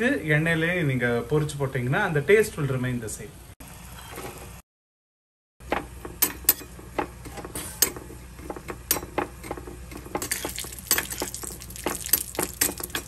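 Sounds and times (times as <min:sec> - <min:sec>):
food frying in oil: 0:10.2 - 0:13.0.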